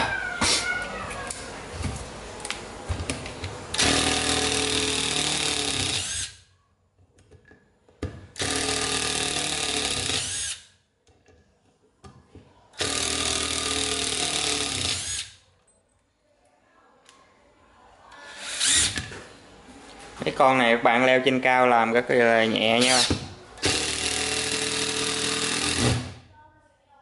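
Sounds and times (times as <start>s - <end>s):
impact driver driving screws: 3.7s - 6.4s, 8.4s - 10.7s, 12.8s - 15.4s, 18.2s - 19.1s, 22.8s - 26.2s.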